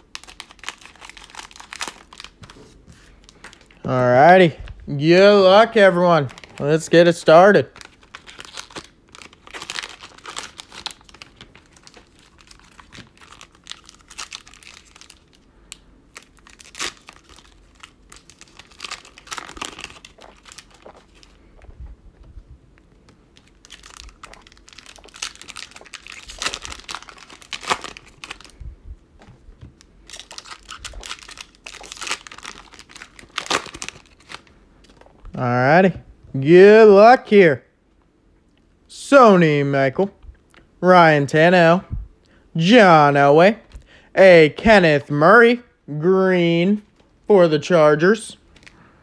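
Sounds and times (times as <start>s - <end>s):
plastic and foil wrappers crinkling: 0.0s - 3.8s, 6.2s - 21.7s, 22.8s - 28.7s, 29.7s - 35.2s, 48.4s - 48.9s.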